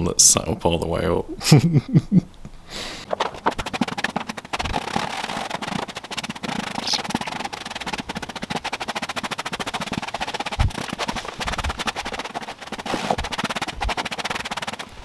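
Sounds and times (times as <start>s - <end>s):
brush scrubbing carpet: 3.0s - 15.0s.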